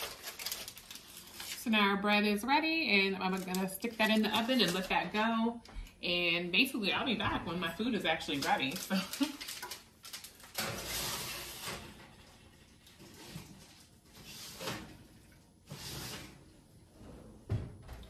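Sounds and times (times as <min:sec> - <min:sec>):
baking sheet scraping and rattling: 0:08.3 - 0:12.1, 0:13.0 - 0:15.0, 0:15.6 - 0:17.2.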